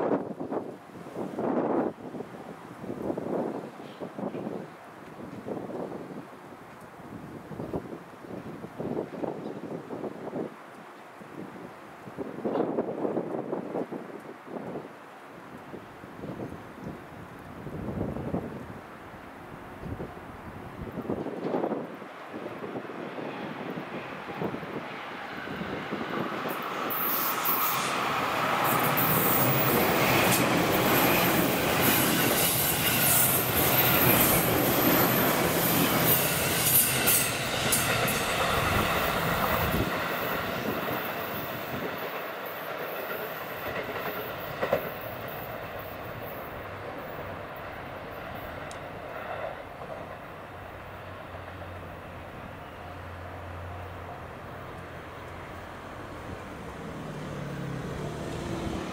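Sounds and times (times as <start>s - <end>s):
train wheels running over rails: 21.0s - 51.8s
high wheel squeal: 26.8s - 29.9s.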